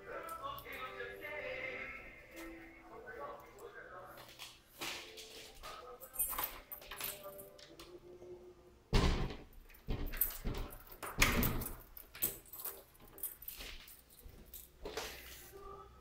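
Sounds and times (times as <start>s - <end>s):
loud thumps: 8.9s - 10.1s
knocks and rattles: 9.0s - 13.3s.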